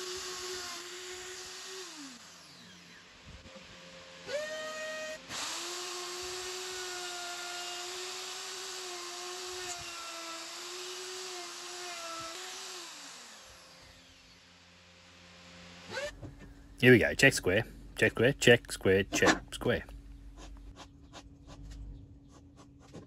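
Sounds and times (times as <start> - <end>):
router motor cutting wood: 0.0 - 16.2.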